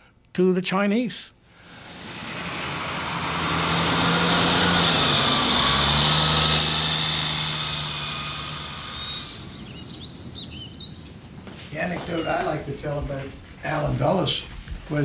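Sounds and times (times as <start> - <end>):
bus driving past: 1.6 - 13.0.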